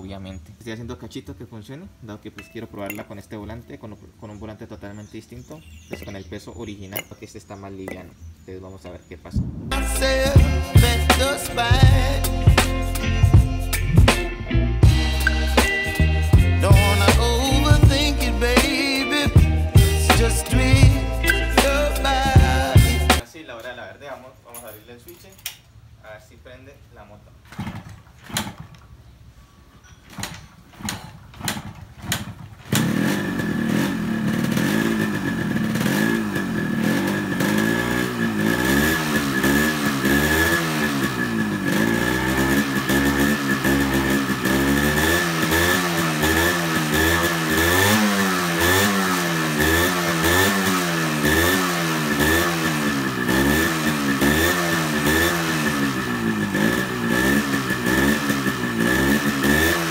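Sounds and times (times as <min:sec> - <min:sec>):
two-stroke engine revving: 0:14.8 - 0:23.2, 0:27.5 - 0:28.7, 0:30.1 - 0:59.9
motorcycle kick-starter kicks: 0:27.4 - 0:29.0, 0:29.7 - 0:33.2.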